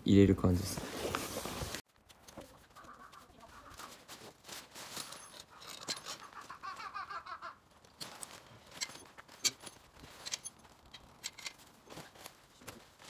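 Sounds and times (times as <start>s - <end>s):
tent fabric rustling: 0.4s - 7.2s, 7.9s - 13.0s
metal tent poles clicking: 5.0s - 6.5s, 7.8s - 12.8s.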